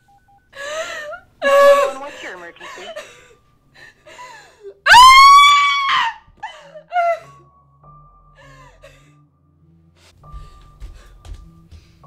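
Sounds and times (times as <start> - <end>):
soft background music: 0.0 - 12.0
woman screaming: 4.8 - 6.3.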